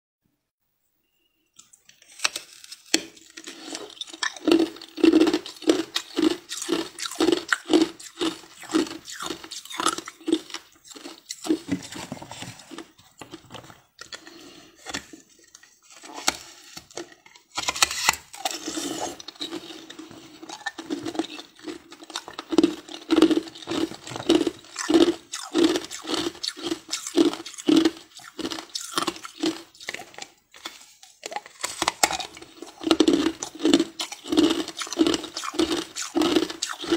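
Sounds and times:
ice clicking against teeth: 0:17.7 - 0:36.9
mouth slurping on ice: 0:18.4 - 0:21.7.

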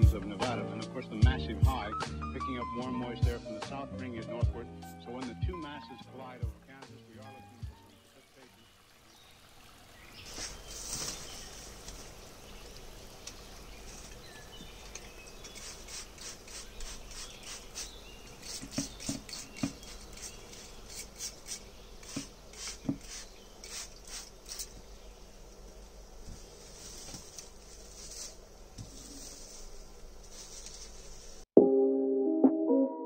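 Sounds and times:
spray bottle hissing sprays: 0:10.3 - 0:11.5, 0:15.0 - 0:24.9.

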